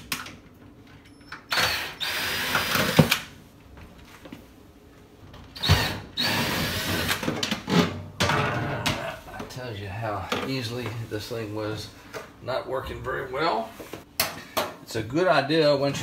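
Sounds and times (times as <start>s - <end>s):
cordless drill running: 1.5s - 3.2s, 5.6s - 7.2s.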